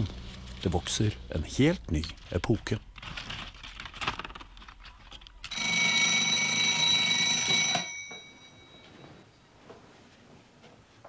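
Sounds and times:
alarm clock bell ringing: 5.5 - 9.2.

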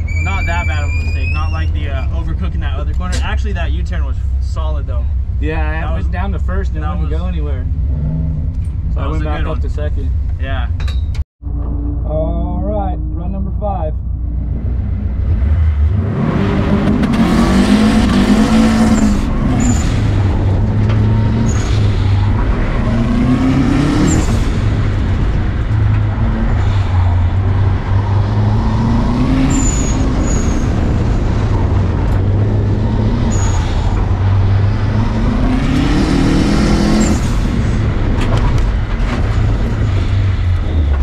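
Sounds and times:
rally car engine revving: 11.4 - 41.0.

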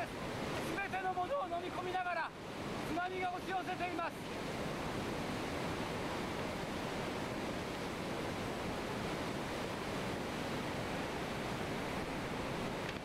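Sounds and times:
seawater surging over a wall: 0.0 - 13.0.

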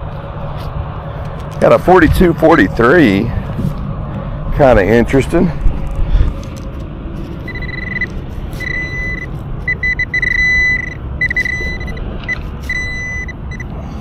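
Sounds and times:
high-pitched beeping tone: 7.5 - 13.7.

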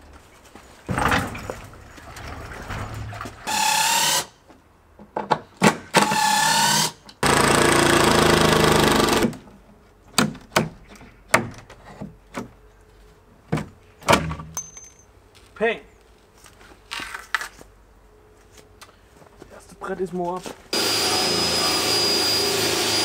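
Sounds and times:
cordless driver motor whine: 20.8 - 23.0.

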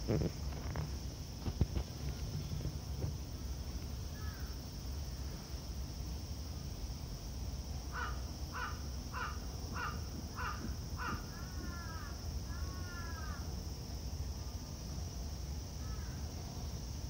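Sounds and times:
low outdoor rumble: 0.0 - 17.0
crow cawing: 4.2 - 4.5, 7.9 - 13.4.

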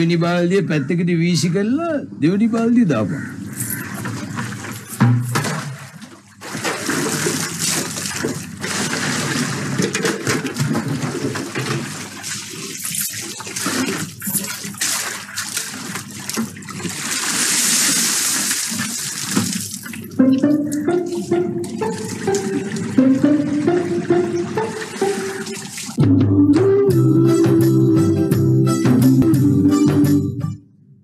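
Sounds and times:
water splashing and sloshing: 3.2 - 26.0
water pouring: 3.6 - 26.0.

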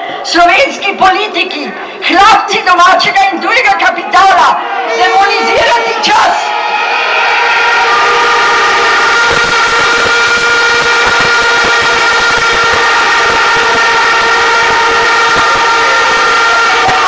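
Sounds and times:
crowd blowing horns and whistles: 4.6 - 17.0.

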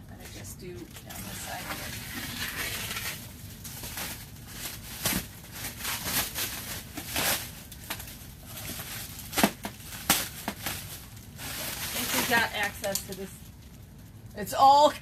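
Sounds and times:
plastic wrapping crinkling: 0.2 - 14.3
plastic wrapping ripping: 0.9 - 14.1.

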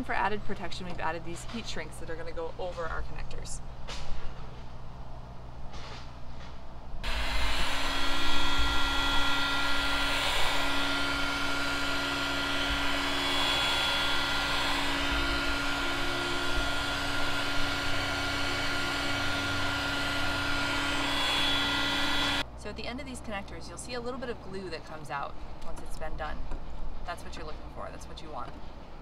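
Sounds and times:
heat gun fan whooshing: 5.6 - 22.5.

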